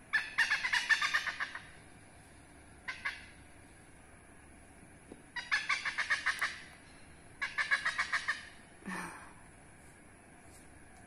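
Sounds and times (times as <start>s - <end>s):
hornbill calling: 0.1s - 1.8s, 2.8s - 3.4s, 5.4s - 6.8s, 7.4s - 8.6s.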